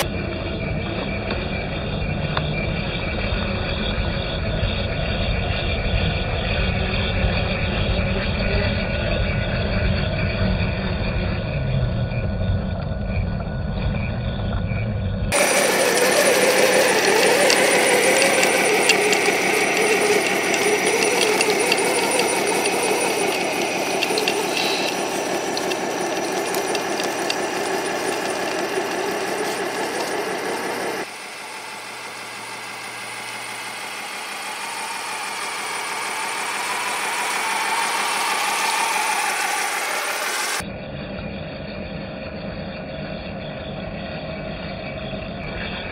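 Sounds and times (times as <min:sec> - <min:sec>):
electric motors whining: 0:00.0 - 0:09.4, 0:15.3 - 0:40.6
drivetrain and tracks rattling: 0:15.3 - 0:31.1, 0:31.8 - 0:40.6.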